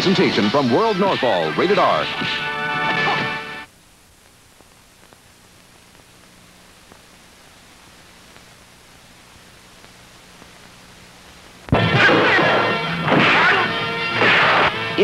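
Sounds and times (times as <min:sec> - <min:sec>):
music and voice: 0:00.0 - 0:03.4, 0:11.8 - 0:15.0
tape hiss: 0:00.0 - 0:15.0
faint low hum: 0:03.7 - 0:11.8
faint clicks: 0:04.2 - 0:06.2, 0:08.3 - 0:08.6.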